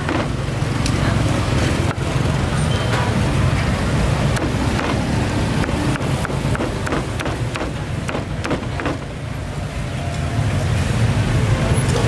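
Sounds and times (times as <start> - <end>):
cleaver chopping on wooden block: 0.0 - 0.4, 4.3 - 9.1
low rumble of street traffic: 0.0 - 12.0.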